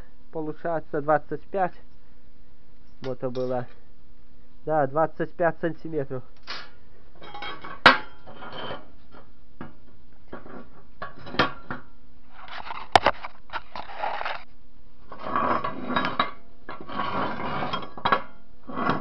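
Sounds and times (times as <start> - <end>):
sharp metal clank: 6.4 - 8.8
metal scraping and rattling: 7.1 - 19.0
metal clinking on metal: 7.2 - 9.2.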